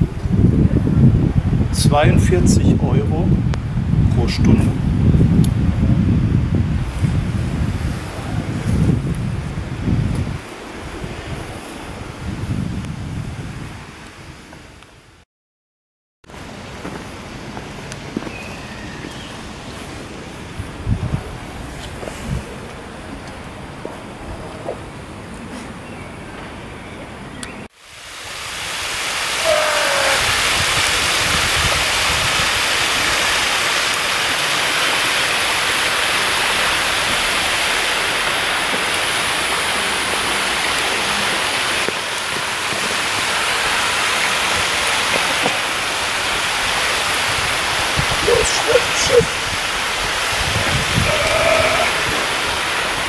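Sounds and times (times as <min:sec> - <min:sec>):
fountain water rushing: 0:27.8 - 0:53.0.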